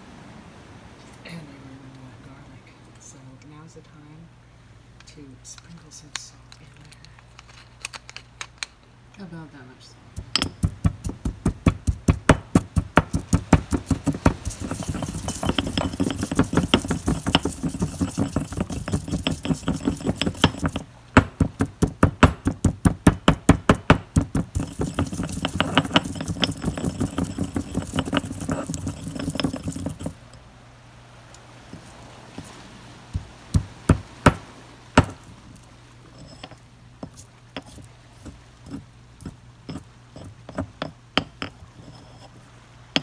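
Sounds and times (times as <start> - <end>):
pestle grinding strokes: 10.2 - 30.2, 31.7 - 34.4, 35.0 - 35.3, 36.1 - 42.3
pestle pounding in stone mortar: 10.2 - 30.2, 33.2 - 34.4, 35.0 - 35.3.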